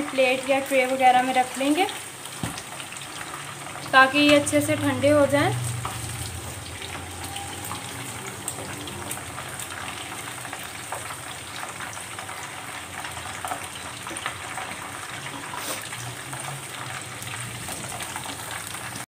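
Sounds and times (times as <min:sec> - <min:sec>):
chicken deep-frying in oil: 0:00.0 - 0:19.0.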